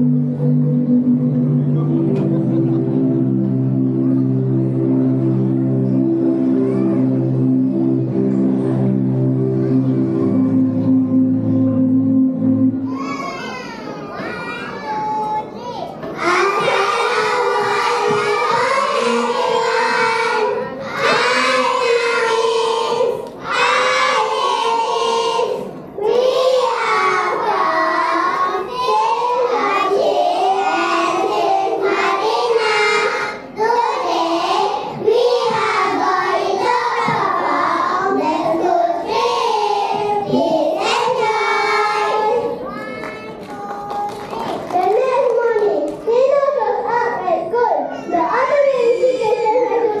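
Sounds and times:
musical accompaniment: 0:00.0 - 0:13.5, 0:16.2 - 0:44.2
children singing together: 0:16.0 - 0:45.0.

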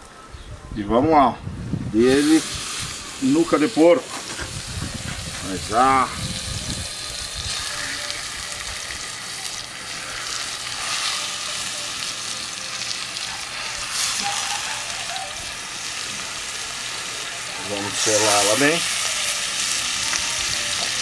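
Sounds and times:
meat sizzling in hot oil: 0:02.0 - 0:21.0.

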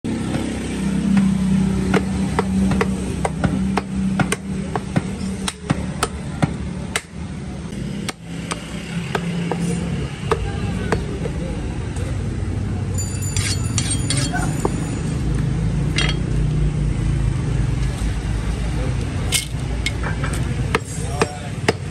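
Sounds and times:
cleaver chopping on wooden block: 0:01.9 - 0:07.2, 0:08.0 - 0:09.6.

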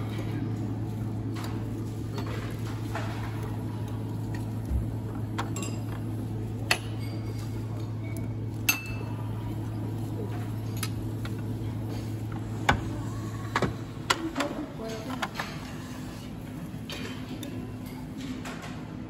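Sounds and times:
steady low hum: 0:00.0 - 0:19.0
dishes clinking: 0:05.4 - 0:06.0, 0:08.6 - 0:09.2.

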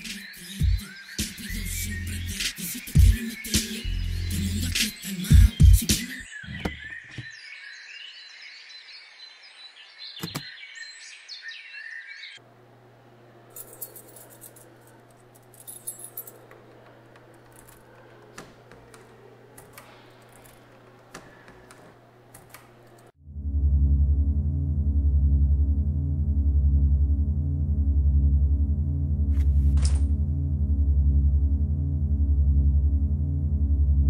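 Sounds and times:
high chirping: 0:00.0 - 0:07.8
sharp click: 0:10.2 - 0:10.5
keys jangling in a door lock: 0:13.6 - 0:23.0
low steady hum: 0:22.0 - 0:34.0.

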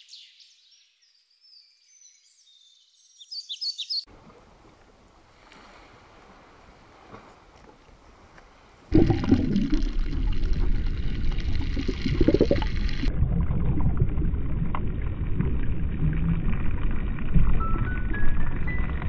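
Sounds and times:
muffled underwater rushing and gurgling: 0:08.7 - 0:19.0.

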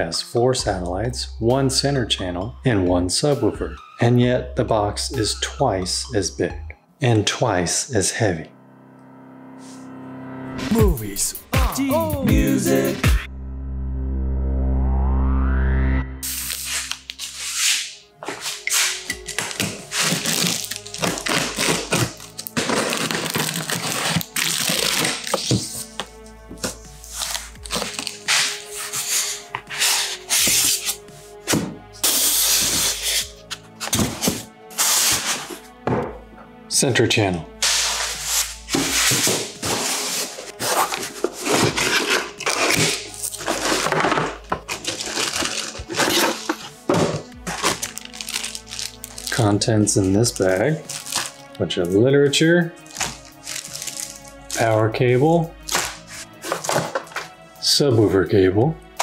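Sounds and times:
background music: 0:00.0 - 0:59.0
styrofoam rubbing and creaking: 0:16.2 - 0:26.0, 0:26.7 - 0:33.6, 0:37.6 - 0:51.5, 0:52.8 - 0:54.7, 0:55.7 - 0:57.3.

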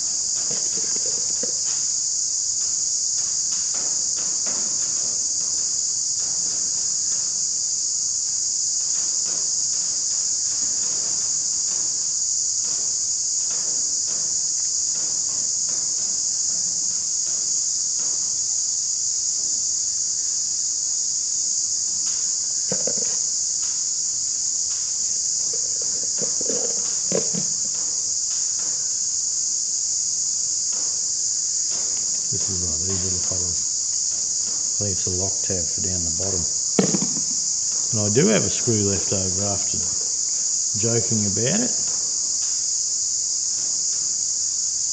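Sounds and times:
insects chorus: 0:00.0 - 0:44.9
knocks on metal: 0:36.8 - 0:37.3.

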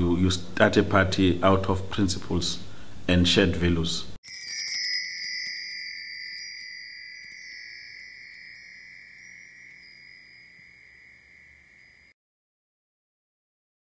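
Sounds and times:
shimmering logo chime: 0:04.2 - 0:12.2.

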